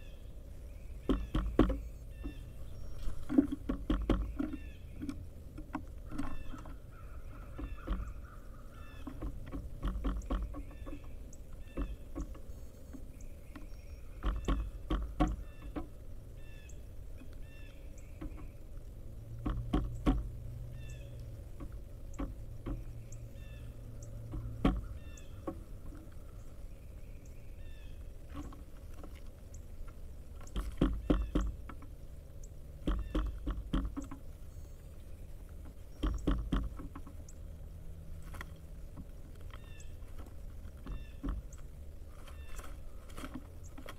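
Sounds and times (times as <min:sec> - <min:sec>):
faint bird chirps: 0:00.0 - 0:05.2, 0:06.1 - 0:09.3, 0:10.0 - 0:18.8, 0:20.7 - 0:21.4, 0:22.0 - 0:28.6, 0:32.2 - 0:36.4, 0:39.5 - 0:40.2, 0:40.8 - 0:43.0
woodpecker bill knocks: 0:01.0 - 0:16.6, 0:17.2 - 0:26.4, 0:28.2 - 0:34.5, 0:35.5 - 0:37.3, 0:38.2 - 0:43.9.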